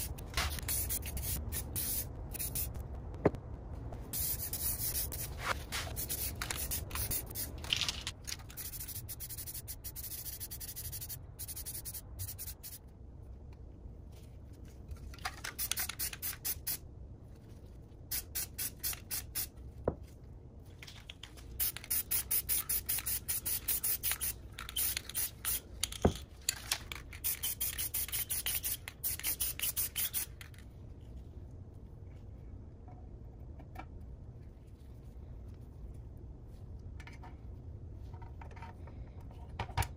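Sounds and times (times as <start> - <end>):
spray paint can hissing: 0.0 - 2.8, 4.1 - 12.8, 15.4 - 16.8, 18.1 - 19.5, 21.5 - 25.7, 27.1 - 30.5
low steady hum: 0.0 - 39.9.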